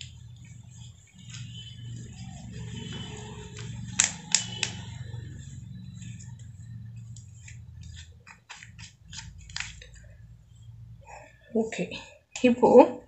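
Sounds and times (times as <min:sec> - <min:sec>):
hand rubbing plastic sheet: 0:00.0 - 0:11.2
steady low hum: 0:00.0 - 0:12.4
sharp clicks: 0:03.6 - 0:05.4.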